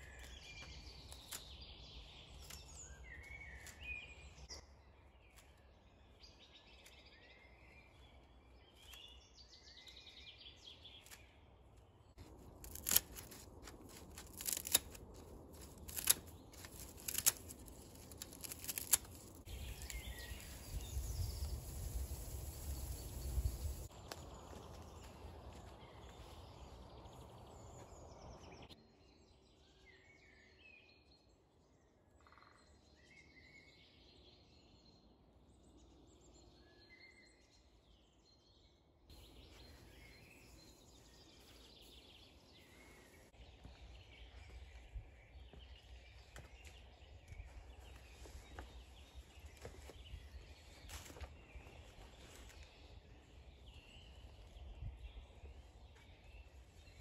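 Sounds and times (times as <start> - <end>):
small birds chirping: 0.0 - 57.0.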